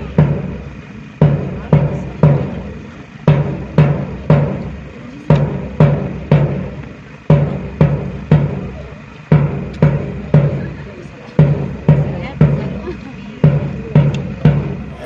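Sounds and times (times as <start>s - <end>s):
bass drum march cadence: 0.0s - 15.0s.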